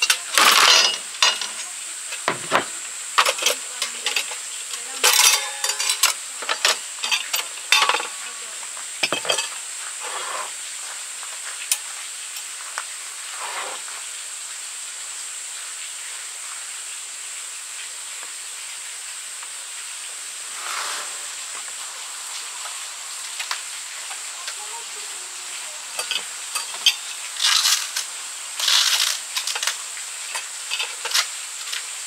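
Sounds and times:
metal and glass parts clinking: 0.0 - 1.6, 2.2 - 4.4, 5.0 - 8.2, 9.0 - 9.6, 25.9 - 31.8
steady high hiss: 0.0 - 32.0.

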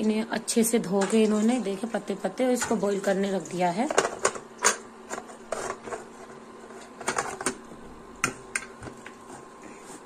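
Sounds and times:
induction cooktop humming: 0.0 - 10.0.

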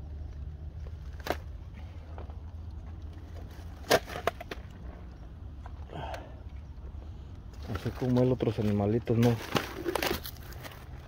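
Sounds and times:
ice cracking and snapping: 7.6 - 10.9.

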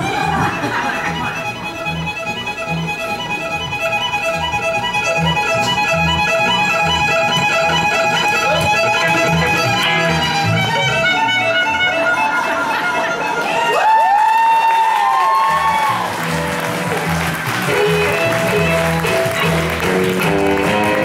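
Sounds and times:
upright bass: 0.0 - 12.2, 15.5 - 21.0
acoustic and electric guitar: 0.0 - 13.8, 15.4 - 21.0
fiddle: 0.0 - 21.0.

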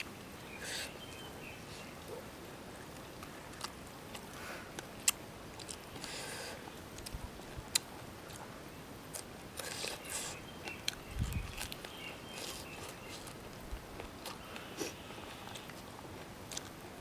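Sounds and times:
person chewing noodles: 3.2 - 8.5, 9.1 - 16.8.

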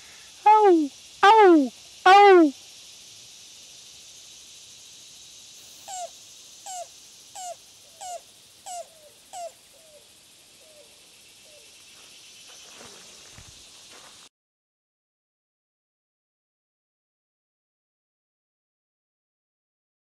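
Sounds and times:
steady high hiss: 0.0 - 14.3
cuckoo calling: 0.5 - 2.5.

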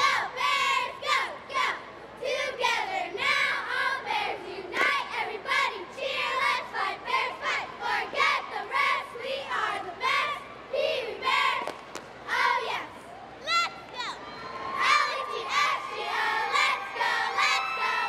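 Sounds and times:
girls shouting a cheer: 12.3 - 18.0.

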